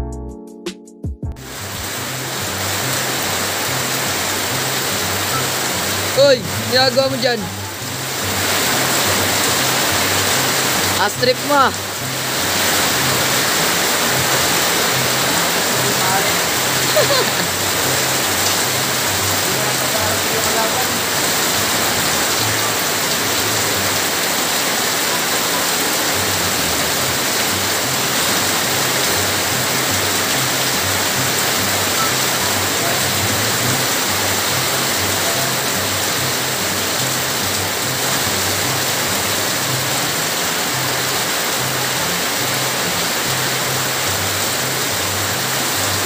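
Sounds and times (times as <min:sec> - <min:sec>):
background music with bass line: 0:00.0 - 0:20.3, 0:26.2 - 0:40.2
heavy rain falling: 0:01.4 - 0:46.0.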